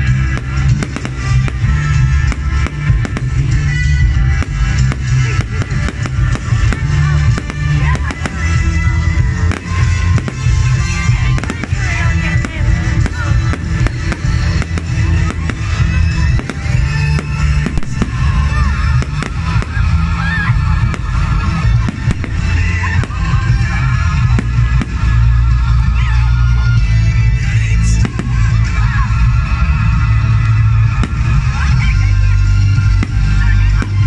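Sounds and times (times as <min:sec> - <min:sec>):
fireworks exploding: 0:00.0 - 0:34.0
loud music with heavy bass: 0:00.0 - 0:34.0.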